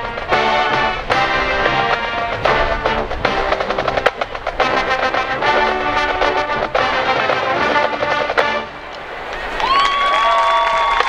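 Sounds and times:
marching band playing: 0:00.0 - 0:09.6.

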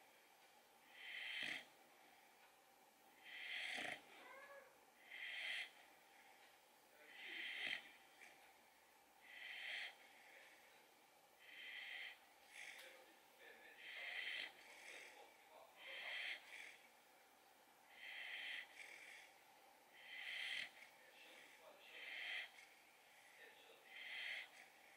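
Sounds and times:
puppy snoring: 0:00.8 - 0:01.8, 0:03.2 - 0:05.8, 0:07.0 - 0:08.5, 0:09.2 - 0:10.8, 0:11.4 - 0:16.9, 0:17.9 - 0:24.9.

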